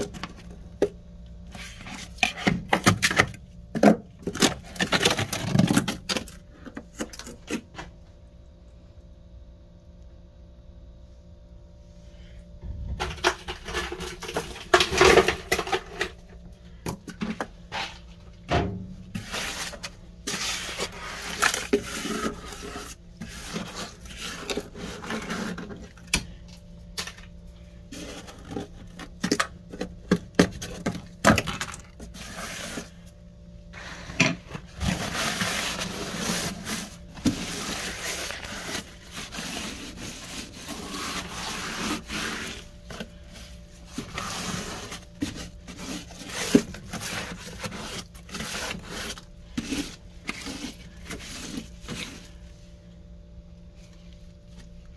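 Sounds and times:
frost scraping and crunching: 4.1 - 7.8, 19.1 - 52.6.

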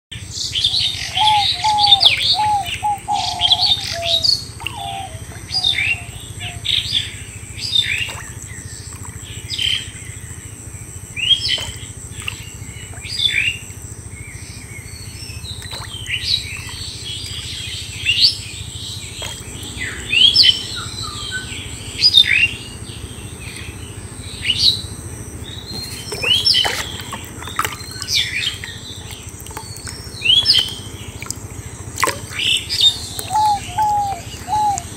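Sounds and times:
bird singing lower notes: 0.2 - 34.9
birds chirping: 0.2 - 34.9.

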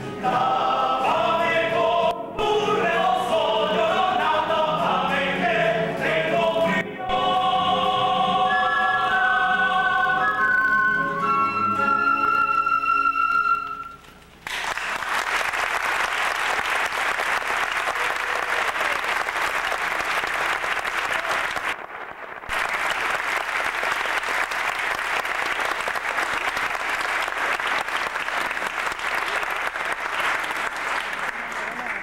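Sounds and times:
song with singing and instruments: 0.0 - 13.9
audience applauding: 14.4 - 32.0.

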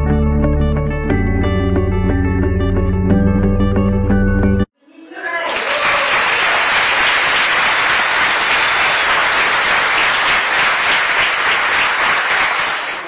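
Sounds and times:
audience applauding: 5.1 - 13.0.

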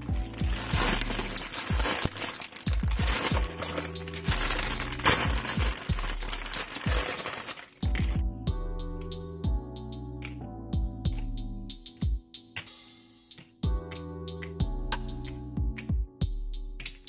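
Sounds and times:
plastic bags crinkling: 0.0 - 8.2
sharp crackle of plastic: 0.0 - 8.2.

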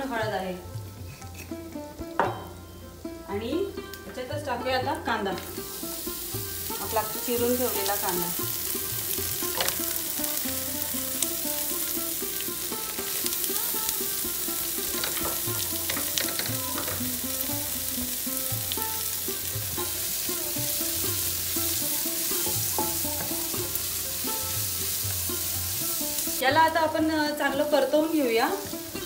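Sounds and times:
onion sizzling in hot oil: 0.0 - 29.0
spatula scraping a pan: 1.0 - 1.7, 11.8 - 17.5.

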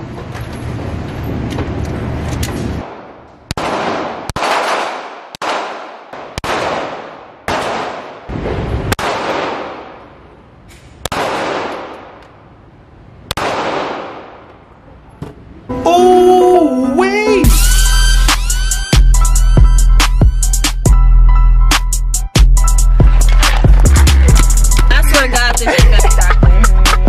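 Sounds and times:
pistol shots echoing: 2.8 - 10.2, 11.0 - 12.2, 13.3 - 14.5.

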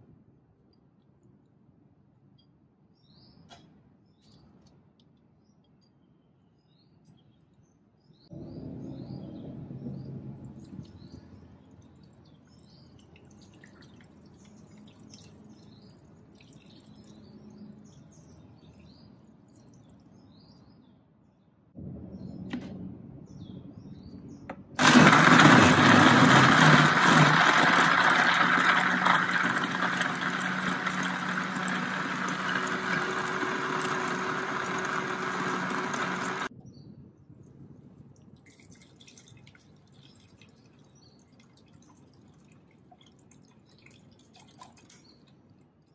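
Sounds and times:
blender grinding: 24.8 - 36.5.

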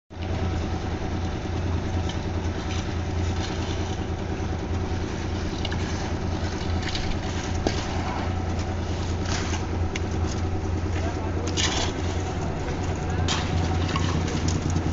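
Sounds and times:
concrete mixer engine running: 0.1 - 14.9
shovels scraping wet concrete: 5.0 - 14.9.

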